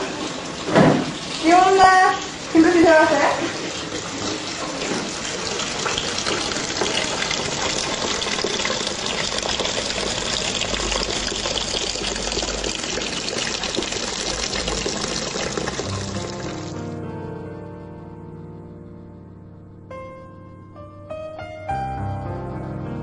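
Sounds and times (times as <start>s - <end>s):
tap water splashing into tub: 0.0s - 16.8s.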